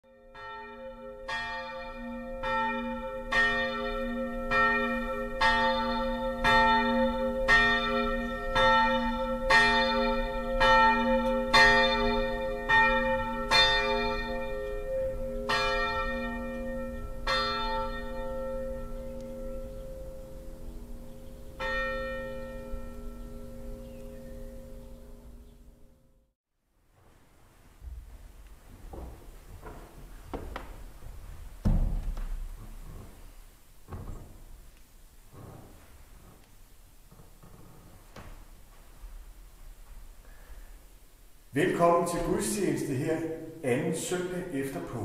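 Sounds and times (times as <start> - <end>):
church bell tolling: 0.1 - 26.0, 41.6 - 45.0.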